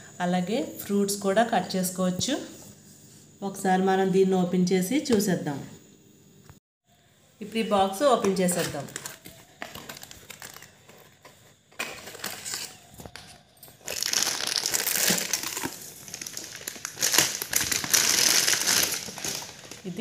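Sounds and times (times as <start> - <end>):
plastic wrap crinkling: 8.5 - 20.0
cardboard packaging rustling: 8.6 - 20.0.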